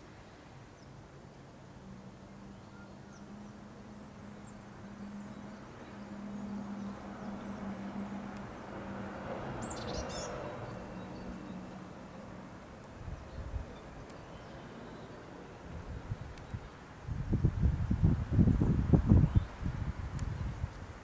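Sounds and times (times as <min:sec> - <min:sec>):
propeller plane engine humming: 0:01.5 - 0:16.8.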